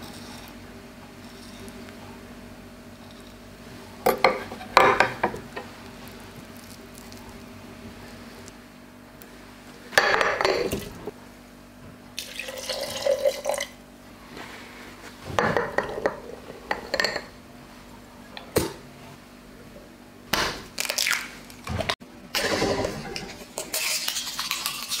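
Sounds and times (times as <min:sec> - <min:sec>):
egg cracking: 0:23.6 - 0:25.0.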